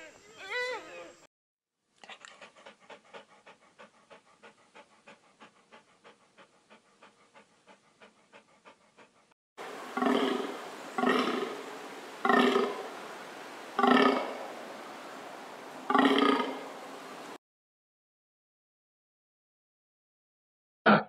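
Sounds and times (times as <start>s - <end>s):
wolf panting: 2.0s - 10.8s
reindeer grunts: 9.9s - 11.6s.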